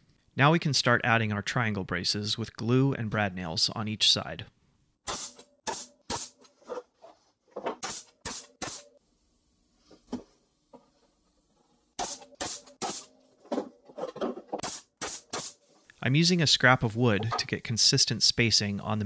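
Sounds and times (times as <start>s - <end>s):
brad nailer firing: 5.0s - 6.4s, 7.7s - 9.0s, 12.0s - 13.2s, 14.6s - 15.6s.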